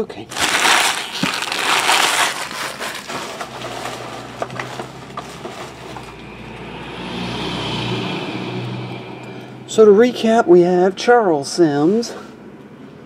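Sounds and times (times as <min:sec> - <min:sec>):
foil wrappers crinkling: 0:00.3 - 0:06.2.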